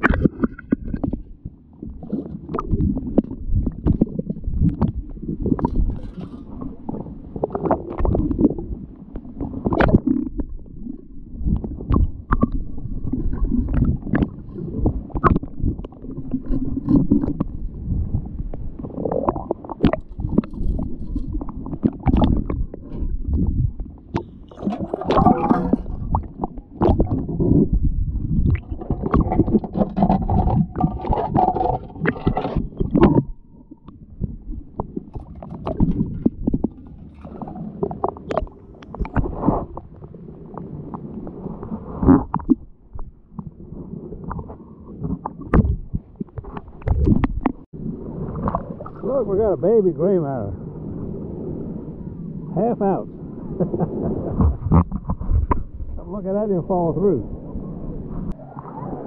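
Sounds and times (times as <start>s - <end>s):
muffled water sloshing: 0.0s - 59.0s
knocks and clicks: 28.5s - 34.0s.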